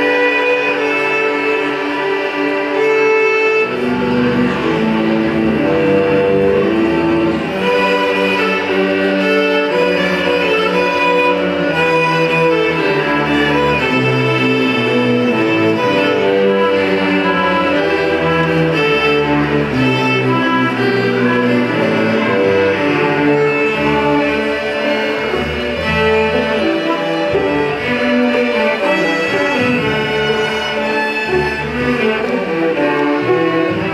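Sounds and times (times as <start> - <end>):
string orchestra playing: 0.0 - 33.9.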